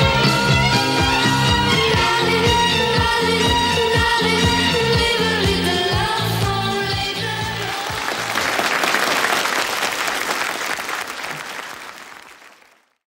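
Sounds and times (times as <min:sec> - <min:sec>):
song with drum beats: 0:00.0 - 0:08.3
audience applause: 0:07.6 - 0:13.0.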